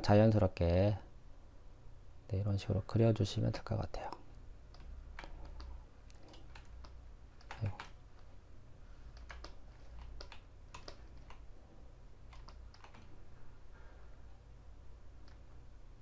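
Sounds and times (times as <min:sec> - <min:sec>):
low steady hum: 0:00.0 - 0:16.0
computer keys clicking: 0:04.0 - 0:08.3, 0:09.1 - 0:11.5, 0:12.2 - 0:13.1, 0:15.2 - 0:15.5.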